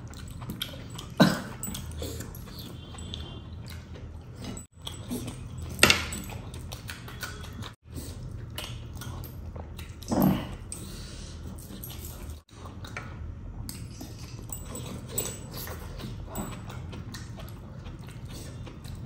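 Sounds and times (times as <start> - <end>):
man chewing food: 0.0 - 19.0.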